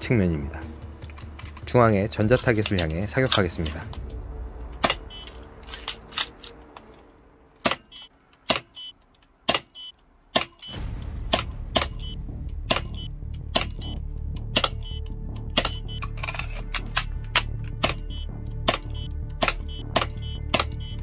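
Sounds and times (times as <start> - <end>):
background music: 0.0 - 8.1, 10.6 - 21.0
toy pistol snapping shots: 7.6 - 8.8, 9.5 - 12.0, 12.6 - 13.8, 14.4 - 14.8, 15.4 - 20.8.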